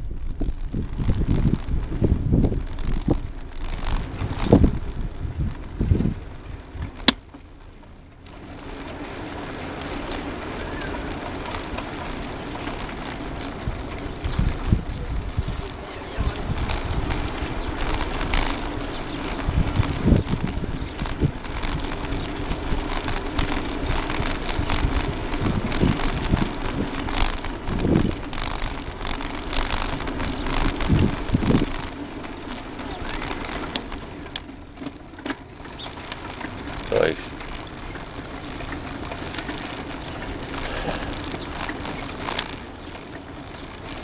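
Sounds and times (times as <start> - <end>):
wind buffeting microphone: 0.0 - 7.1, 9.3 - 34.5
tyres rolling on concrete: 0.0 - 44.0.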